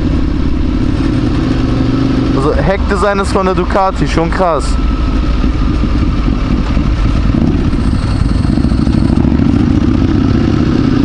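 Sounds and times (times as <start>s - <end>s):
motorcycle engines running: 0.0s - 11.0s.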